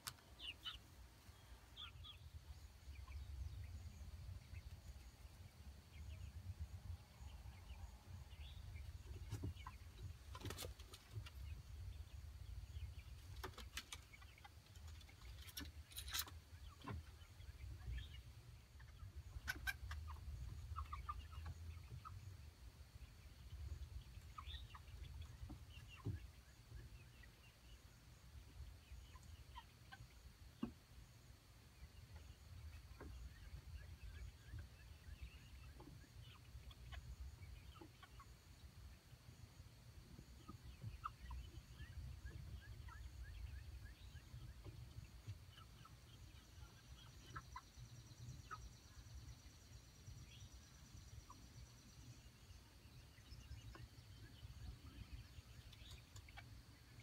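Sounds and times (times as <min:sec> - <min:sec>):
young chickens clucking and peeping: 0:00.0 - 0:57.0.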